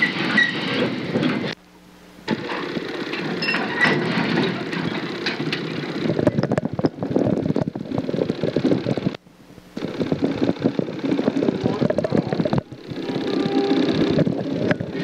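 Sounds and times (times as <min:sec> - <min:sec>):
motor running with rapid clatter: 0:00.8 - 0:15.0.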